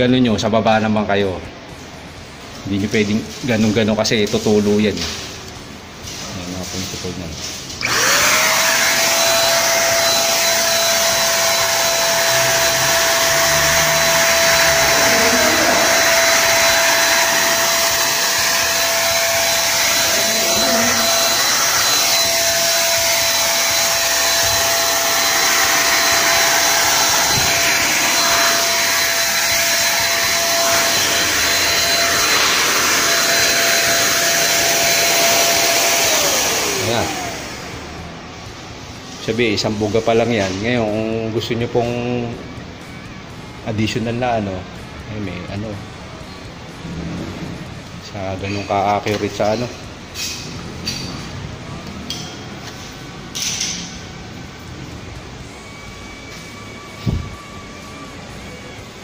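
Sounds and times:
electric spray gun whine: 0:07.8 - 0:38.1.

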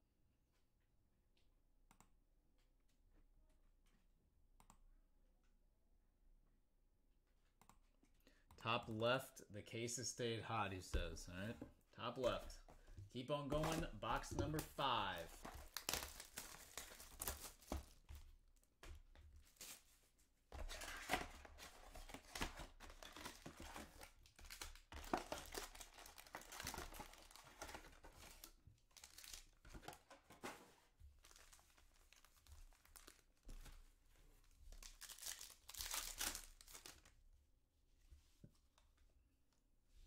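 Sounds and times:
card packs crinkling and tearing: 0:13.5 - 0:18.2, 0:20.6 - 0:30.5, 0:31.2 - 0:33.7, 0:34.7 - 0:37.1.

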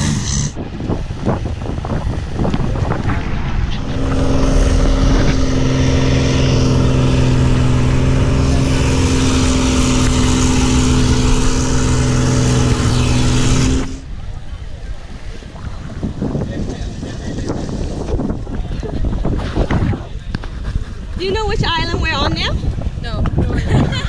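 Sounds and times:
boat engine running: 0:00.0 - 0:19.2.

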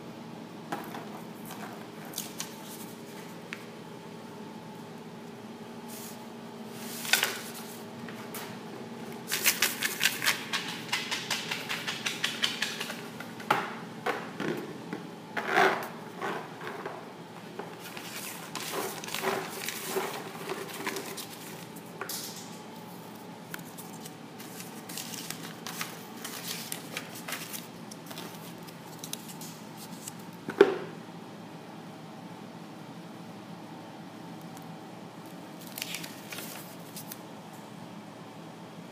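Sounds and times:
steady low hum: 0:00.0 - 0:38.9
paper rustling: 0:09.2 - 0:13.0, 0:17.7 - 0:21.8, 0:23.5 - 0:30.2, 0:35.6 - 0:37.2.

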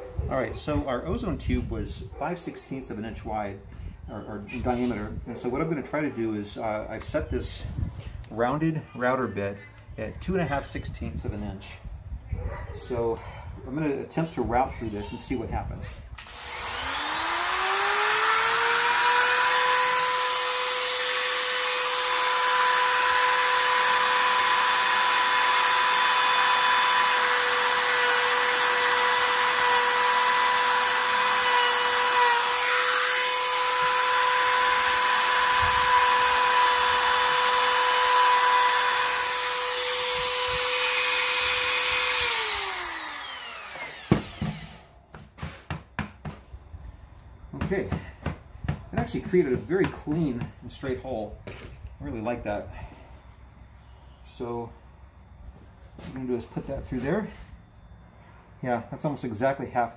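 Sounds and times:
router cutting a groove: 0:16.2 - 0:44.9
router motor whine: 0:16.2 - 0:44.9.

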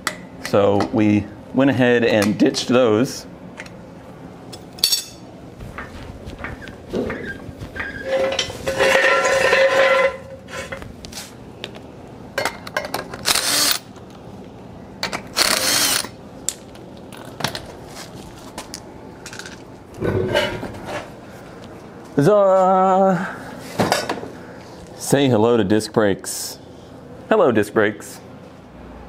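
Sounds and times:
wrench ratcheting: 0:13.2 - 0:13.9, 0:15.4 - 0:16.1.

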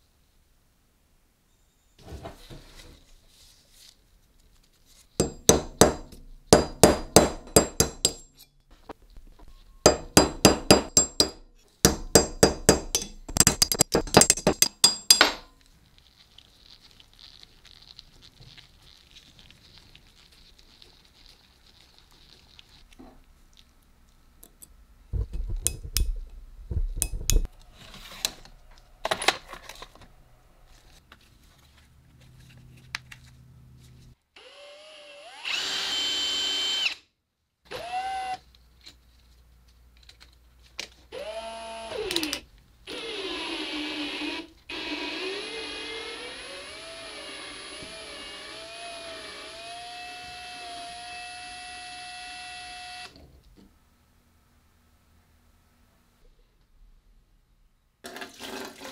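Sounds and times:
hammer striking metal punch: 0:05.2 - 0:08.3, 0:09.9 - 0:15.5
drill whining: 0:34.4 - 0:37.0, 0:37.7 - 0:38.4, 0:41.1 - 0:53.2.

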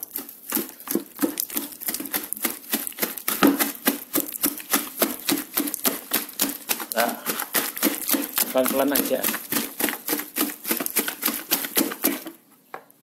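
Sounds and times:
wire masher knocking in a bowl: 0:07.2 - 0:09.4.

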